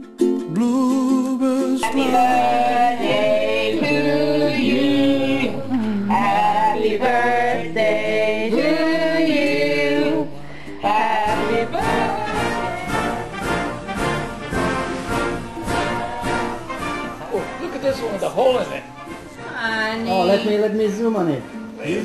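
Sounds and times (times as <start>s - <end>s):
song with singing and instruments: 0.0s - 17.6s
different music piece: 1.8s - 22.0s.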